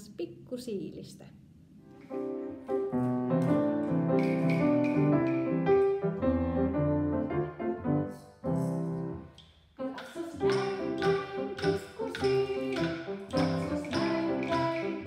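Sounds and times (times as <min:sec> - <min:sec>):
piano playing: 0:02.0 - 0:09.3, 0:10.4 - 0:15.0.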